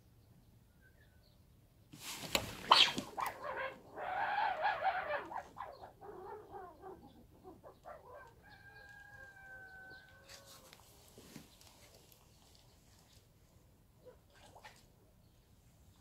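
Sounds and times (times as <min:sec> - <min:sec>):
rooster crowing: 0:08.4 - 0:10.8.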